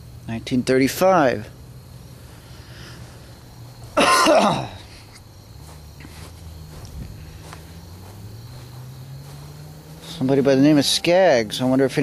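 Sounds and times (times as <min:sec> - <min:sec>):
person coughing: 0:04.0 - 0:04.9.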